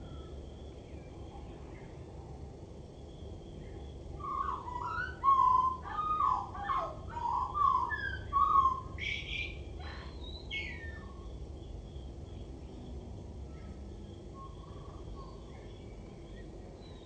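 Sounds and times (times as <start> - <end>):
blackbird singing: 3.4 - 12.8, 14.3 - 17.0.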